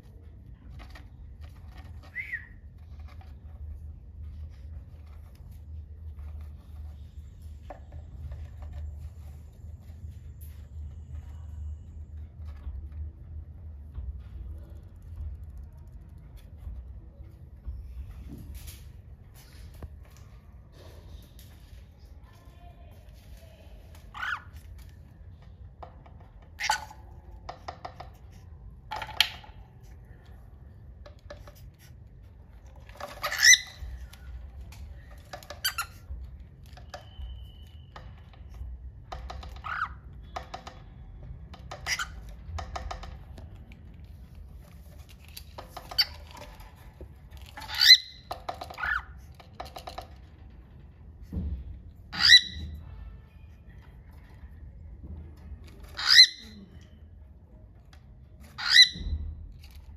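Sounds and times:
cockatiels calling: 24.1 - 24.6, 33.1 - 34.0, 39.5 - 40.0, 47.6 - 49.2, 52.2 - 52.7, 55.9 - 56.5, 58.6 - 59.0.

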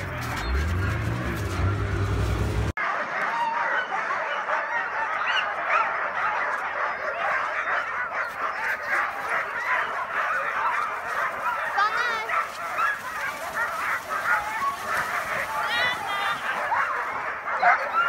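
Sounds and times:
sled dogs yelping and howling: 0.0 - 18.0.

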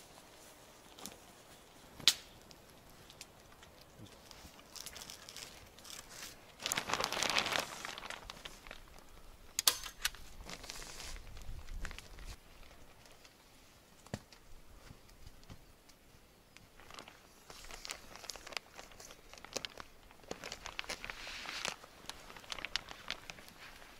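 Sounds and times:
plastic sheeting crinkling: 0.0 - 9.3, 10.1 - 14.2, 16.5 - 23.9.

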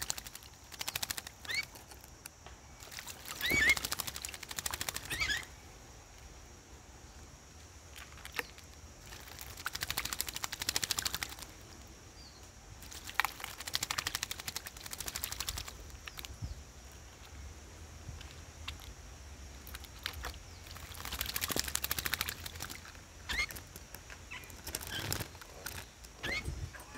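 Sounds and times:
bird wings splashing water: 0.0 - 1.8, 2.8 - 5.5, 7.9 - 11.7, 12.8 - 16.4, 19.5 - 26.4.

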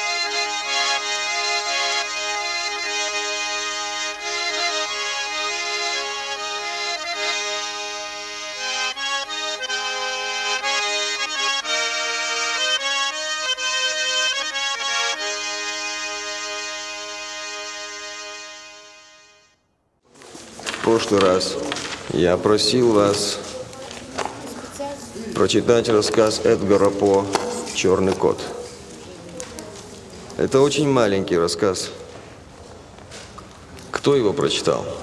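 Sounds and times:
instrumental music with held chords: 0.0 - 19.6.

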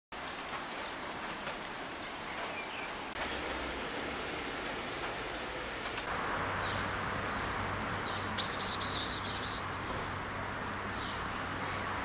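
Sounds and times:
steady rain falling: 0.1 - 7.9
sharp raindrops tapping: 0.2 - 6.1.

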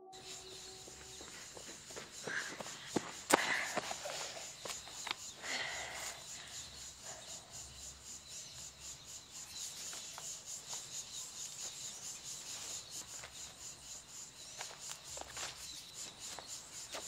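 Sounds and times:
insects chirping: 0.0 - 17.0
faint ticks: 4.6 - 5.4.

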